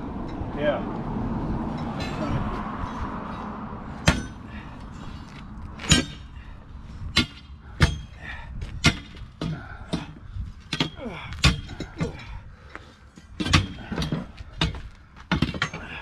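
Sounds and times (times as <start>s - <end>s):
steel bars clanking on concrete: 1.7s - 2.4s, 5.8s - 6.5s, 7.2s - 12.4s, 13.1s - 16.0s.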